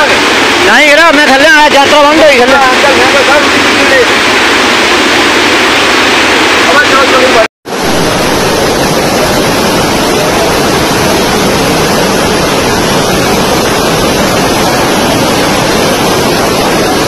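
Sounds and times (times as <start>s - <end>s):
floodwater rushing over pavement: 0.0s - 17.0s.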